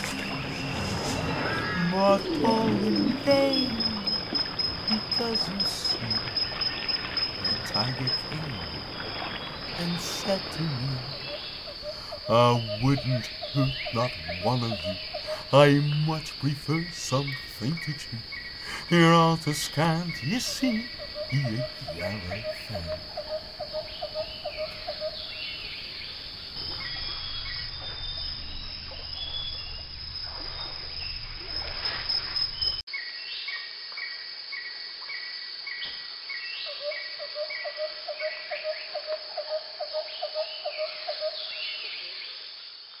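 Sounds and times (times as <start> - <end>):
low pulsing call: 0.0 - 6.8, 9.8 - 25.3
bird calls: 0.0 - 29.8
high insect drone: 0.0 - 32.8
cricket-like chirps: 0.0 - 43.0.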